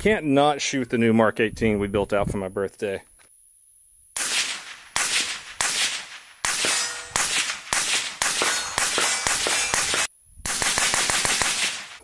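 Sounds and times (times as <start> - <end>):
rifle gunshots: 4.2 - 12.0.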